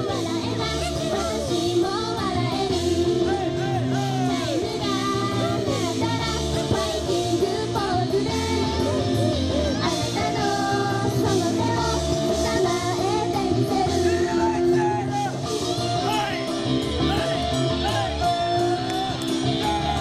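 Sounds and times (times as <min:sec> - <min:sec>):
women singing pop song: 0:00.0 - 0:15.1
upbeat rock backing track: 0:00.0 - 0:20.0.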